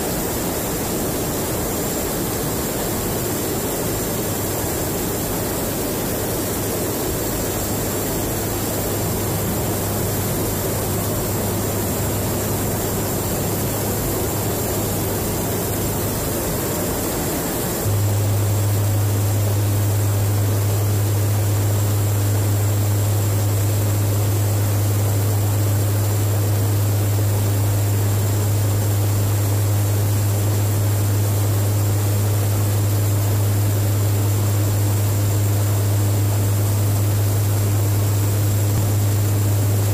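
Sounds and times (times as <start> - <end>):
steady rushing noise: 0.0 - 21.8
propeller engines droning: 0.0 - 23.2.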